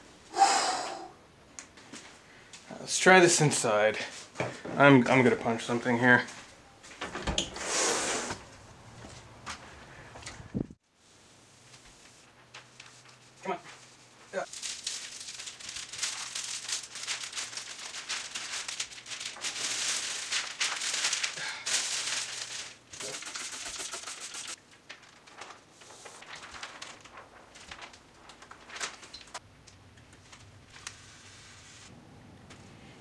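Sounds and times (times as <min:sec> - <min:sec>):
plastic film crinkling: 0:11.6 - 0:31.8.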